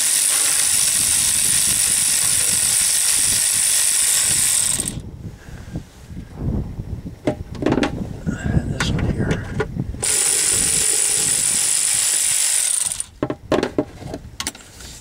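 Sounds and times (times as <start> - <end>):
electric ratchet spinning: 0.0 - 5.0, 10.0 - 13.2.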